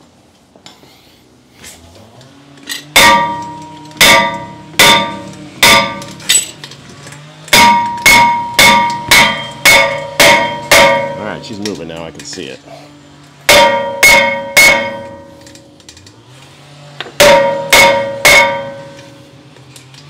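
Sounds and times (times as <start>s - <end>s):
sledgehammer striking ringing metal: 2.8s - 6.6s, 7.5s - 11.7s, 13.4s - 15.8s, 17.2s - 19.3s.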